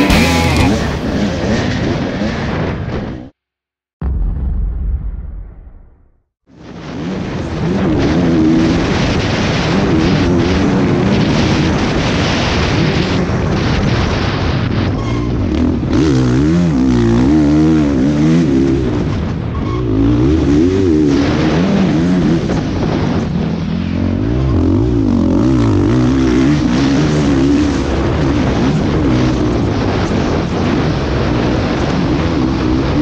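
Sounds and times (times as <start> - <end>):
dirt bike engine revving: 0.0 - 3.3, 15.1 - 33.0.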